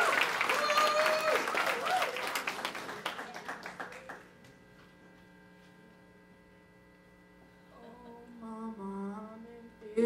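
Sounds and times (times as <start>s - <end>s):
applause: 0.0s - 4.4s
amplifier electrical hum: 0.0s - 10.0s.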